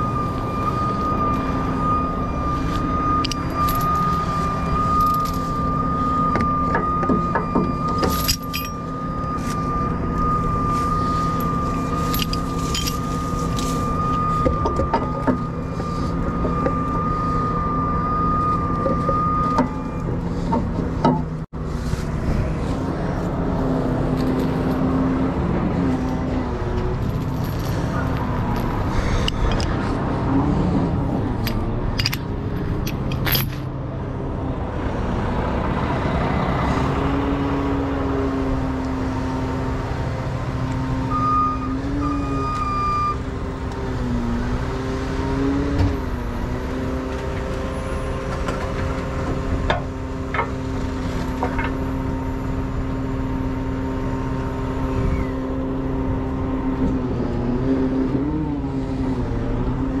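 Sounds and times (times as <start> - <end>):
short beeps: 0.0 - 20.5, 41.1 - 43.2
diesel engine running: 0.0 - 60.0
sharp metal clinks: 7.6 - 9.3, 11.2 - 14.3.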